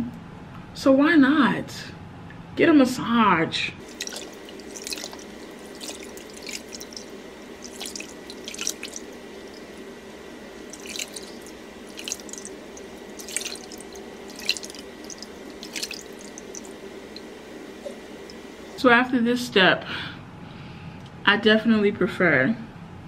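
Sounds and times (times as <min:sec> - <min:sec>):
water splashing into a bowl: 0:03.8 - 0:09.8, 0:10.6 - 0:18.5.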